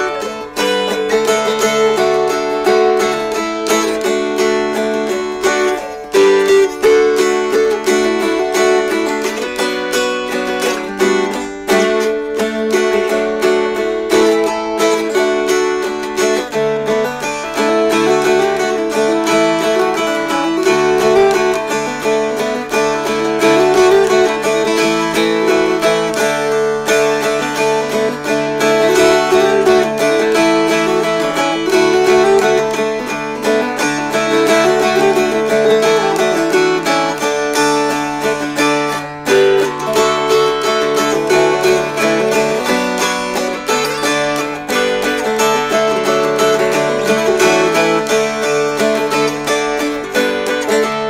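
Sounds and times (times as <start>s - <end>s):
mountain dulcimers strummed: 0.0s - 51.0s.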